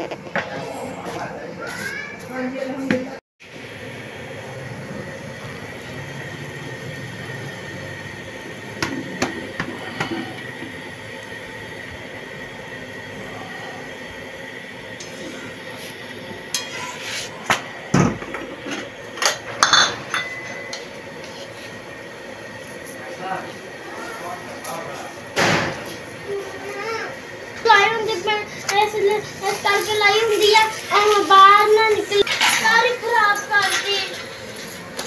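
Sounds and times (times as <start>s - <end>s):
metal utensils clinking on a pan: 18.8s - 20.9s, 32.2s - 34.6s
steady hiss: 21.0s - 35.0s.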